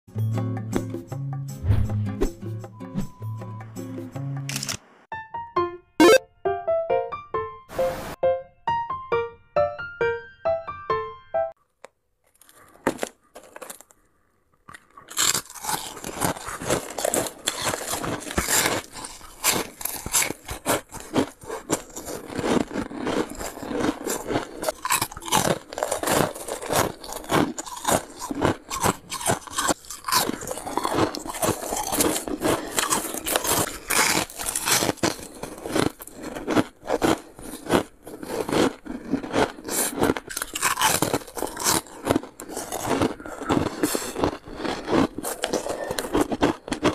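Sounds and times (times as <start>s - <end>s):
frost being chewed: 11.6s - 46.9s.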